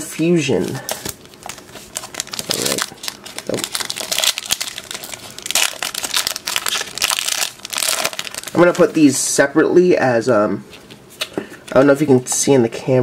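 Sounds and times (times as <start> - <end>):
foil wrapper crinkling: 0.7 - 9.0.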